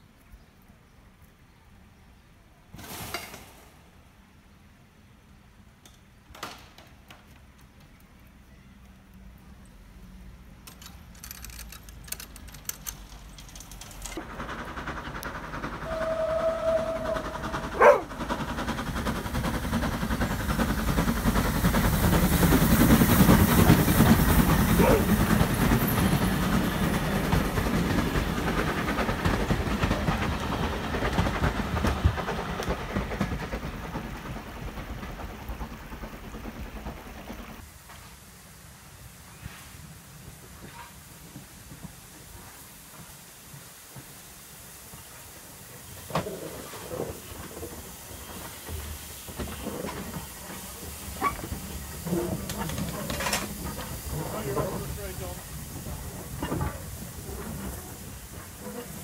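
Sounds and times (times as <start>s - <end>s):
steam train rumbling past: 8.3s - 59.0s
steam whistle blast: 15.8s - 17.8s.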